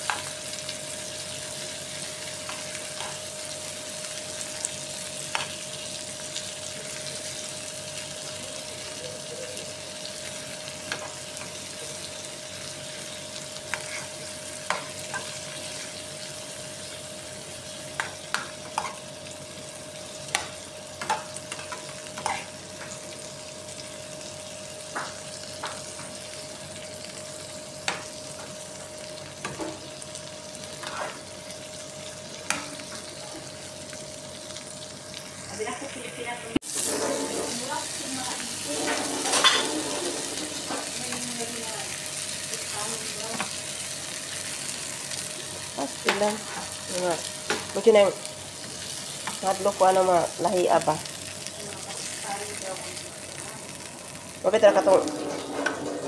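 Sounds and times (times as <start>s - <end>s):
shrimp sizzling in pan: 0.0s - 56.0s
metal spoon scraping pan: 36.7s - 37.7s, 38.7s - 40.9s, 54.9s - 56.0s.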